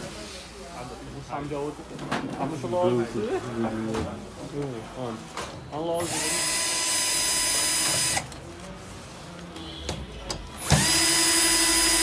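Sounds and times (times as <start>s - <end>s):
drill driving screw into metal: 6.0s - 8.3s, 10.6s - 12.0s.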